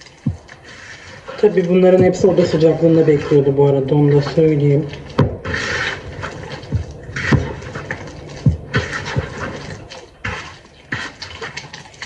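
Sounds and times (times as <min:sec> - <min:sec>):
hand kneading dough in bowl: 0:00.0 - 0:12.0
dull knocks: 0:05.2 - 0:05.6, 0:06.5 - 0:09.5.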